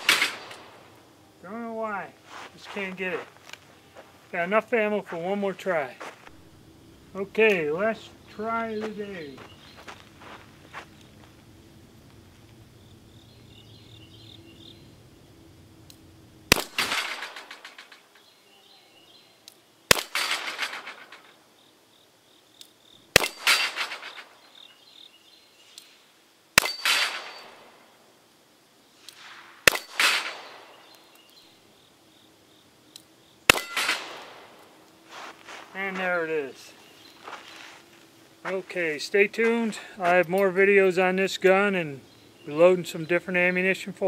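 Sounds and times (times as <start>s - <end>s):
bullet hitting steel plate: 0.0s - 0.7s, 16.5s - 18.0s, 19.9s - 21.4s, 23.2s - 24.4s, 26.6s - 27.6s, 29.6s - 30.8s, 33.5s - 34.5s
revolver shots: 0.0s - 0.8s, 16.4s - 17.9s, 23.1s - 24.4s, 26.6s - 27.7s, 29.2s - 31.0s, 33.4s - 34.7s.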